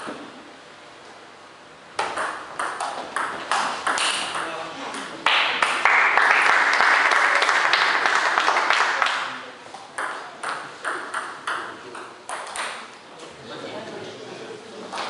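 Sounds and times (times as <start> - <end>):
spectators applauding: 5.2 - 9.5.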